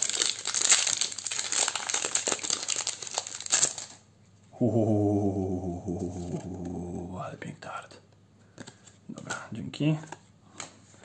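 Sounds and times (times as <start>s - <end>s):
wrapper crinkling: 0.0s - 4.0s.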